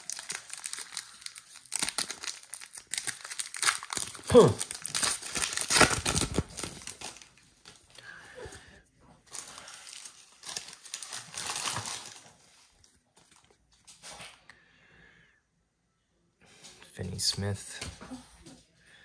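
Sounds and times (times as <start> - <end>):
plastic wrapper crinkling: 0.0 - 8.1, 9.2 - 14.1.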